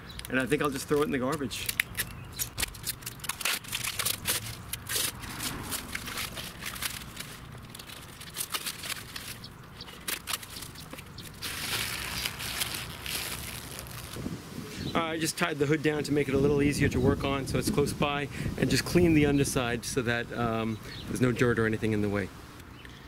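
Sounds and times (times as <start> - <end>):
plastic film peeling and crinkling: 0.5 - 14.4.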